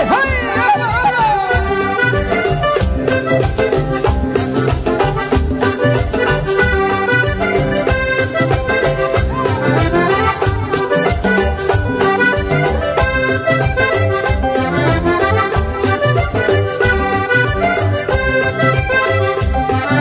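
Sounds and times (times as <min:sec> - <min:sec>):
button accordion: 0:00.0 - 0:20.0
drum and percussion beat: 0:00.0 - 0:20.0
electric guitar: 0:00.0 - 0:20.0.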